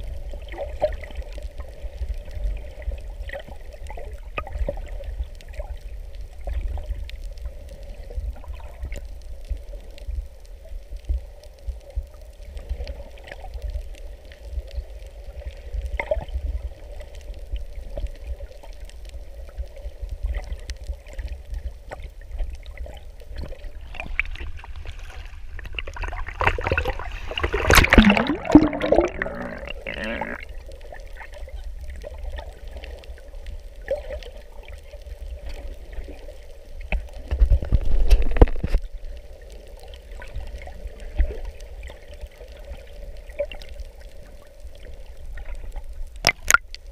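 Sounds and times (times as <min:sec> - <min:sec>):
water rushing underwater: 0:00.0 - 0:10.0, 0:12.4 - 0:46.9
water splashing: 0:21.9 - 0:33.2, 0:45.3 - 0:46.9.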